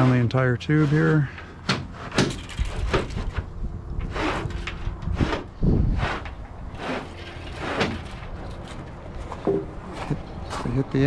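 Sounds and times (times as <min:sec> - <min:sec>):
rod scraping inside a tube: 0:00.0 - 0:08.9
footsteps on gravel: 0:06.2 - 0:11.0.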